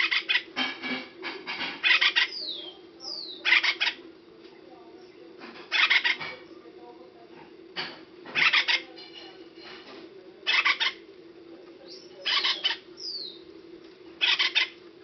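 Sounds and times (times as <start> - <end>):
woodpecker harsh buzzy calls: 0.0 - 0.6, 1.8 - 4.0, 5.7 - 6.3, 8.4 - 8.9, 10.5 - 11.0, 12.2 - 13.4, 14.2 - 14.8
steady low hum: 0.0 - 15.0.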